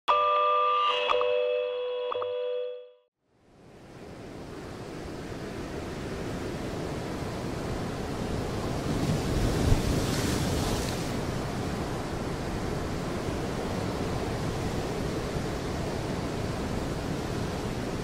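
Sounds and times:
wind noise: 3.9s - 18.0s
sea surf washing onto beach: 4.0s - 18.0s.

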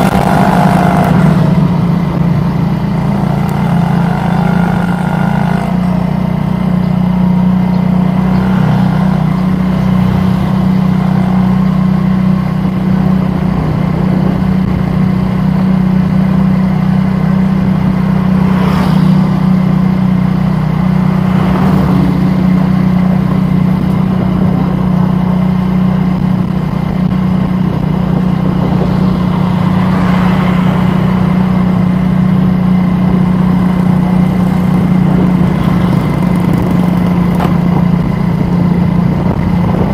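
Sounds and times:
passing traffic: 0.0s - 39.9s
vehicle engine humming: 0.0s - 39.9s.

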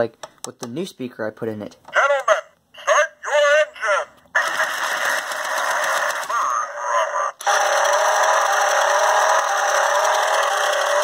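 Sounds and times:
toy truck engine-revving sound effect: 4.4s - 11.0s.

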